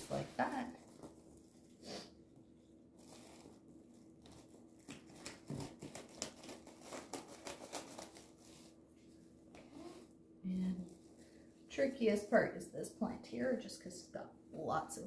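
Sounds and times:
plastic bag crinkling: 2.9s - 8.4s.

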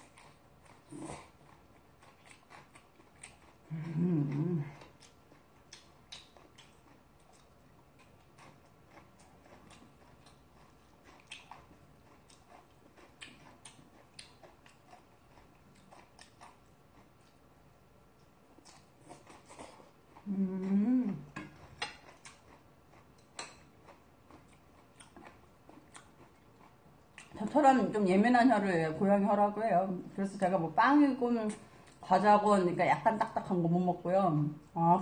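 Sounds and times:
chewing mouth clicks and smacks: 4.8s - 17.4s, 21.4s - 27.4s.

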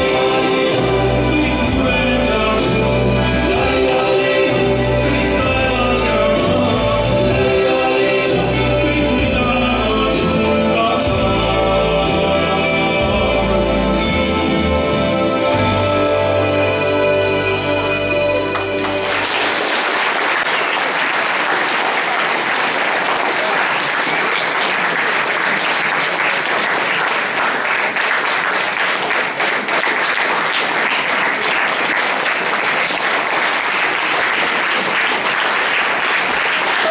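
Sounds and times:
waltz music: 0.0s - 20.5s
audience applauding: 18.5s - 36.9s.

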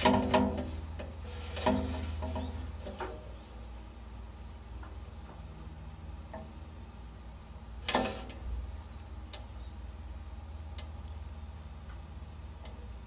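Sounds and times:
putty knife scraping metal panel: 0.0s - 3.2s
faint ticks: 9.0s - 9.5s.

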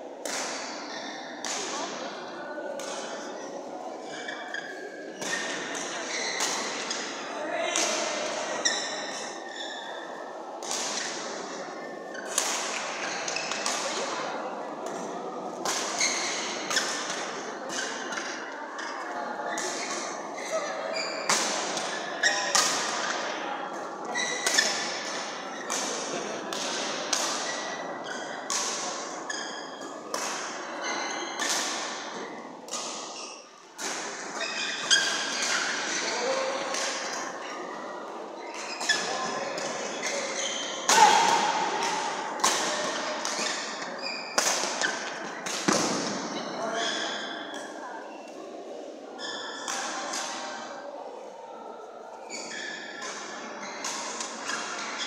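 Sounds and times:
rackets striking shuttlecock: 38.5s - 46.3s.

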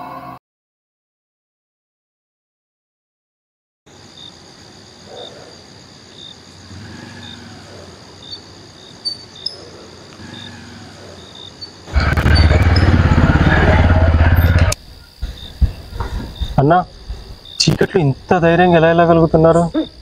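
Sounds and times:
crickets chirping: 3.9s - 20.0s
motorcycle engine running: 11.9s - 16.2s.

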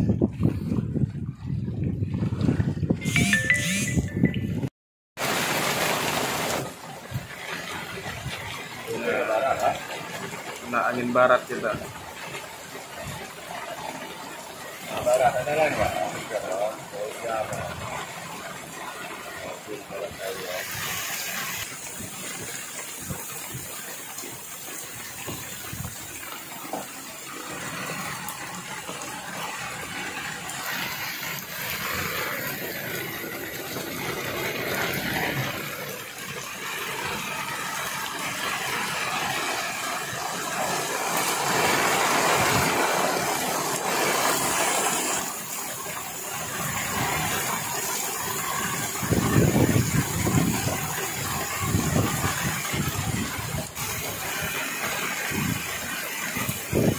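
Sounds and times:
strong wind: 0.0s - 3.1s, 24.9s - 26.2s, 41.4s - 56.9s
rain over rough water: 0.0s - 56.9s.

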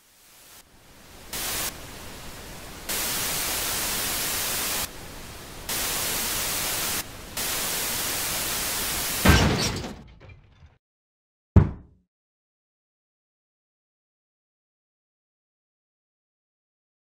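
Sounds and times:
television static hiss: 0.0s - 9.2s.

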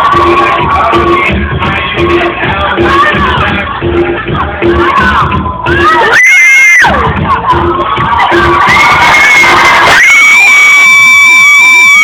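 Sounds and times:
crowd of children cheering: 4.6s - 12.0s.

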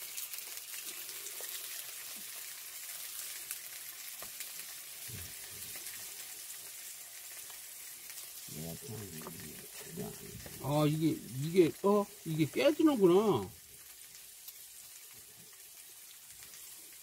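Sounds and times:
tofu sizzling in oil: 0.0s - 17.0s.

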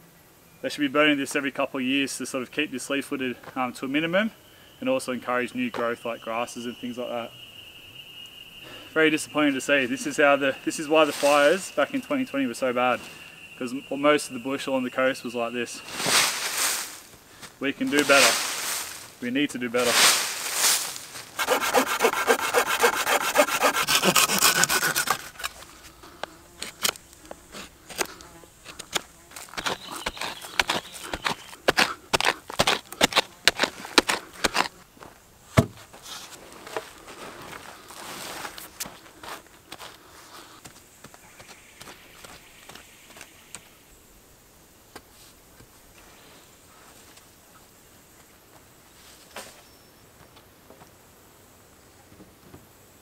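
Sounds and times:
dry leaves rustling and crackling: 10.9s - 11.7s, 15.8s - 26.0s
hand saw cutting wood: 21.4s - 25.6s, 26.6s - 34.8s.

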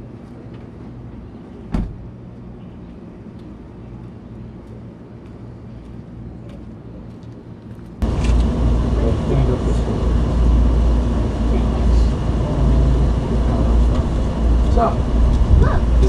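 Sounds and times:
faint hum: 0.0s - 16.0s
low outdoor rumble: 0.0s - 16.0s
loud low rumble: 8.0s - 16.0s.

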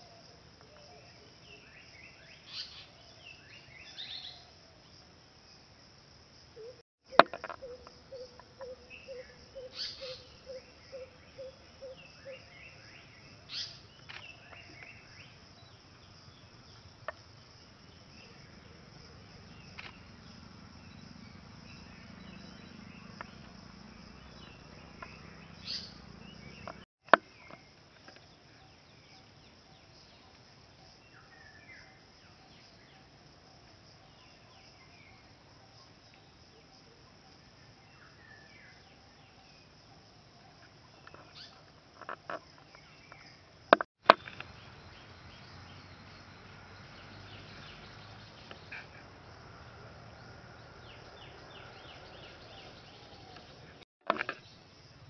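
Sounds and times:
faint insect hum: 0.0s - 55.0s
bird chirps and calls: 6.6s - 15.4s, 24.4s - 26.8s.

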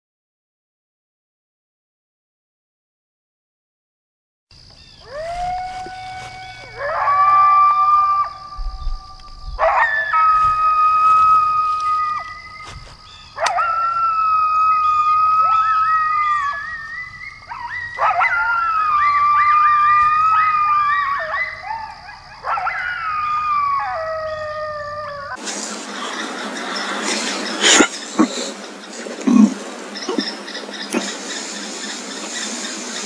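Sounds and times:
coyote howling: 5.0s - 25.4s
steady hiss: 25.4s - 33.0s.

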